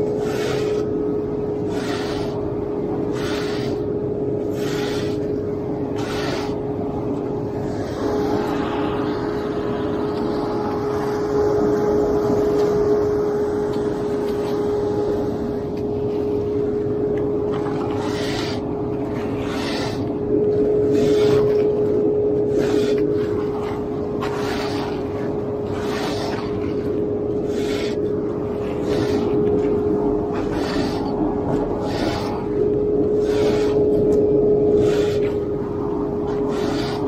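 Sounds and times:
steady engine hum: 0:00.0 - 0:37.0
metal float scraping wet concrete: 0:01.6 - 0:02.4, 0:17.6 - 0:20.1, 0:20.8 - 0:21.8, 0:22.4 - 0:34.2, 0:36.3 - 0:37.0.

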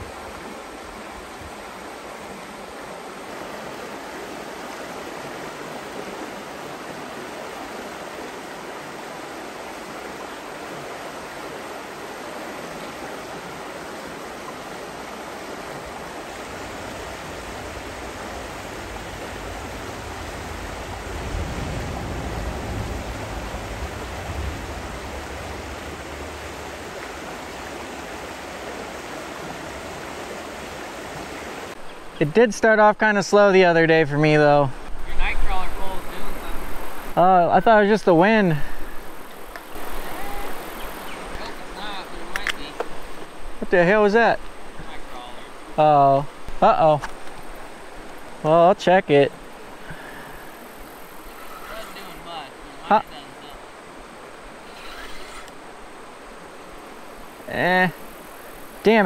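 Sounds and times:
creek rushing over stones: 0:00.0 - 0:59.0
low rumble: 0:17.2 - 0:27.9.

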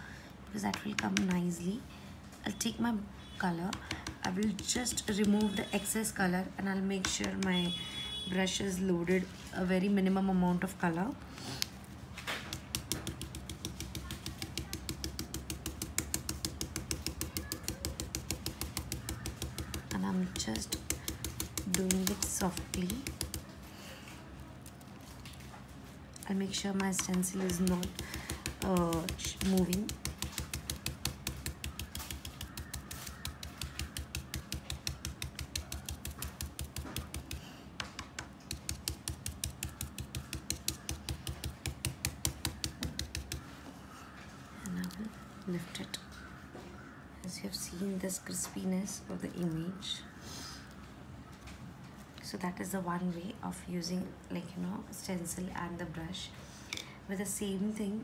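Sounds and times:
stencil brush tapping: 0:00.6 - 0:01.4, 0:03.6 - 0:06.0, 0:07.0 - 0:07.8, 0:12.4 - 0:23.6, 0:26.4 - 0:43.6.

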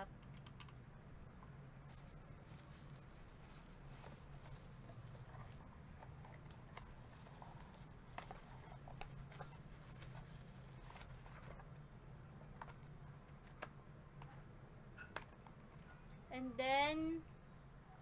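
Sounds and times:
low steady hum: 0:00.0 - 0:18.0
plastic bag crinkling: 0:01.8 - 0:11.6.

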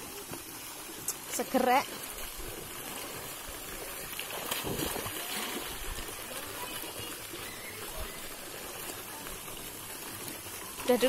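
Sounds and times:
child wading through water: 0:00.0 - 0:11.0
water splashing and running: 0:00.0 - 0:11.0
faint voices: 0:03.4 - 0:11.0.

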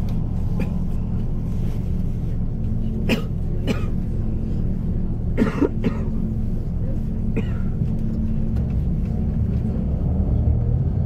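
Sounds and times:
bus engine and road noise: 0:00.0 - 0:11.0
person coughing: 0:03.0 - 0:04.1, 0:05.4 - 0:06.2, 0:07.3 - 0:07.8.

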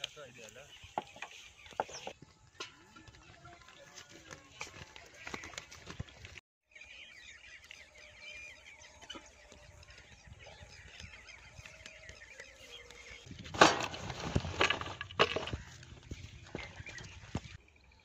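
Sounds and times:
birds chirping: 0:00.0 - 0:18.0
rustling: 0:13.4 - 0:17.4.

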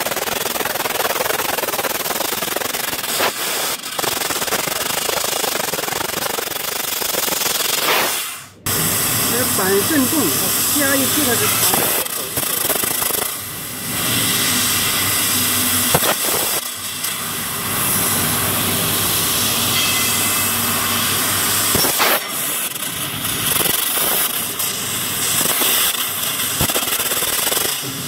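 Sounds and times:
laser cutter gas hiss: 0:00.2 - 0:28.0
sharp pops: 0:03.1 - 0:08.3, 0:15.9 - 0:16.7.

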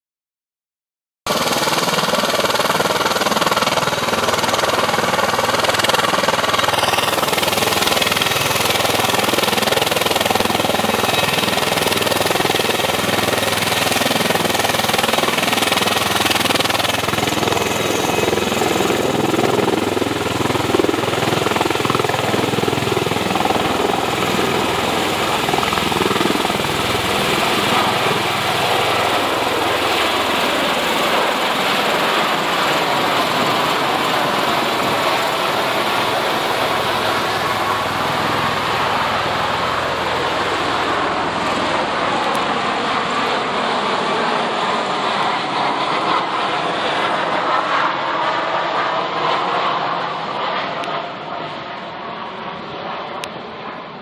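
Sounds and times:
tiltrotor aircraft engines and rotors: 0:01.3 - 0:54.0.

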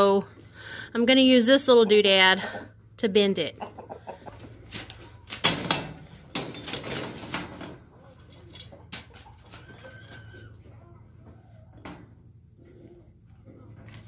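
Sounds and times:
metal cart parts rattling: 0:05.3 - 0:09.3.

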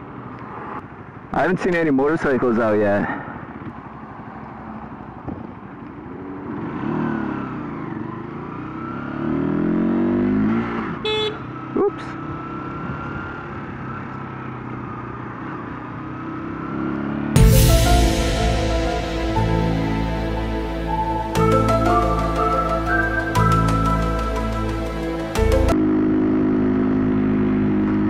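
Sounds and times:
motorcycle engine accelerating: 0:06.0 - 0:11.0, 0:21.4 - 0:28.0.

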